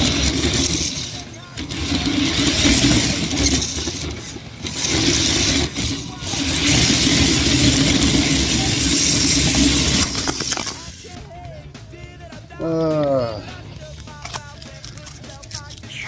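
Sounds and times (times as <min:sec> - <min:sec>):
toy truck electric motor humming: 0:00.0 - 0:11.2.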